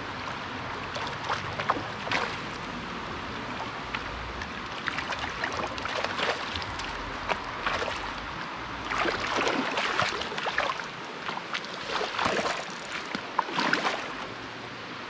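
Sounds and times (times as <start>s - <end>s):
creek rushing: 0.0s - 15.0s
fish splashing at surface: 8.9s - 14.1s.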